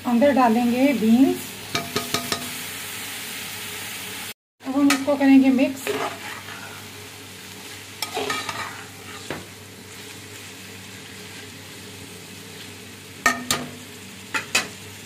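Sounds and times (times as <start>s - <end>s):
vegetables sizzling in oil: 0.0s - 15.0s
metal spatula scraping a pot: 4.9s - 6.9s, 8.0s - 9.4s.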